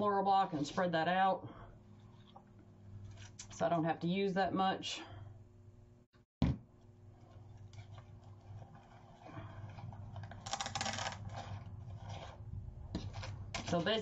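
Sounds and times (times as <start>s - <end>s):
crinkling and rustling mesh: 7.2s - 12.4s.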